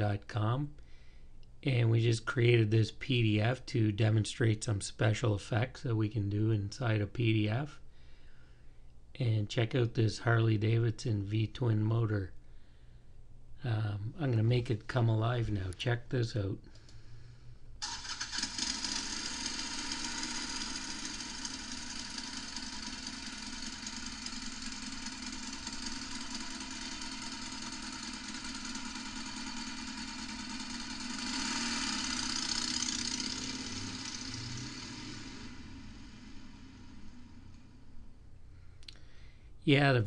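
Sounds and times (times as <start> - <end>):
motorcycle engine idling: 17.8 - 38.0.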